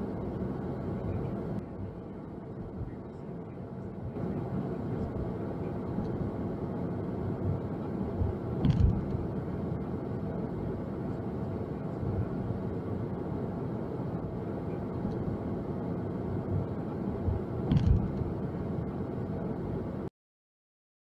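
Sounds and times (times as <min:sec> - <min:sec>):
car road and engine noise: 0:00.0 - 0:20.1
low thump: 0:08.6 - 0:09.1, 0:17.3 - 0:18.2.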